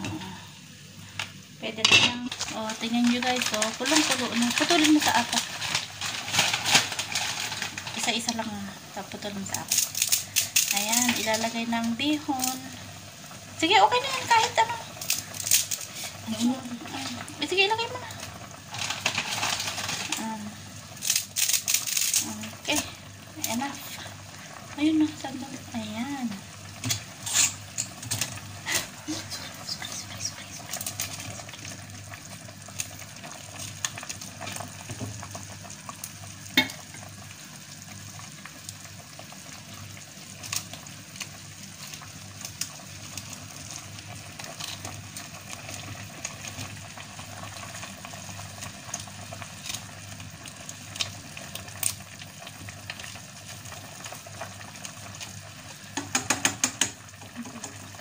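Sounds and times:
broth boiling in a pot: 0.0 - 58.0
spatula scraping and tapping pot: 56.0 - 57.8.

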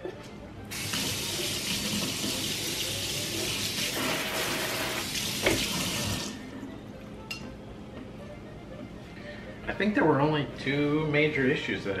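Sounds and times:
water running into metal sink: 0.7 - 6.4.

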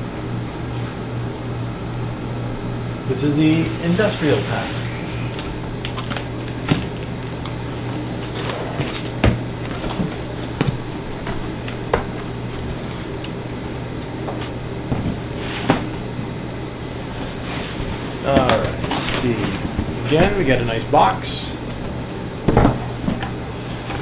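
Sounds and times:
steady low hum: 0.0 - 24.0
cardboard flaps handled: 4.0 - 20.4, 21.6 - 24.0.

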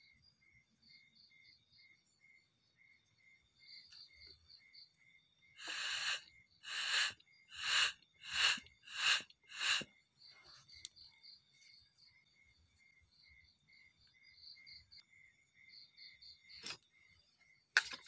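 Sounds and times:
crickets chirping: 0.0 - 18.0
short hissing whooshes: 5.6 - 9.9.

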